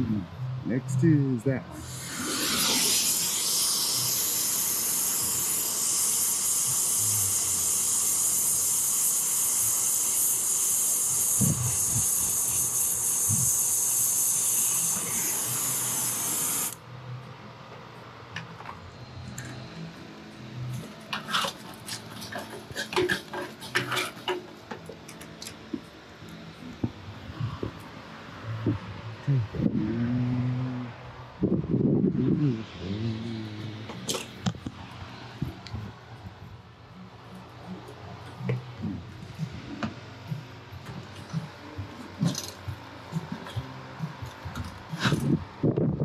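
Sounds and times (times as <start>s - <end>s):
torch flame hissing: 1.7s - 16.8s
metal coil clicks and rattles: 42.2s - 42.6s.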